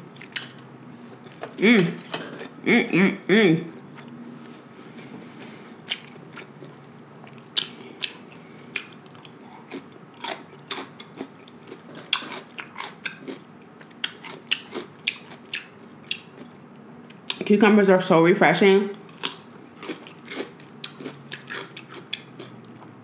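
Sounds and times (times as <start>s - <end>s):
chewing crunchy cucumber: 5.5s - 17.4s, 19.0s - 23.0s.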